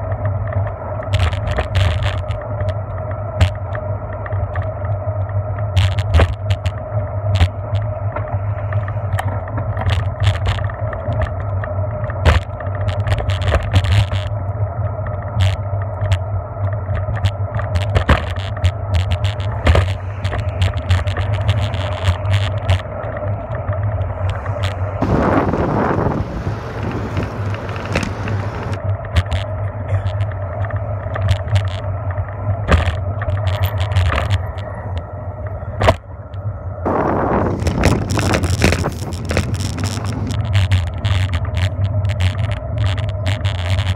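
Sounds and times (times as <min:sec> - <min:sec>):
bicycle rattles and knocks: 0:00.0 - 0:43.9
bicycle rolling on paved road: 0:00.0 - 0:43.9
car traffic passing: 0:19.4 - 0:28.8
wind hiss on microphone: 0:24.2 - 0:28.8, 0:36.8 - 0:40.7.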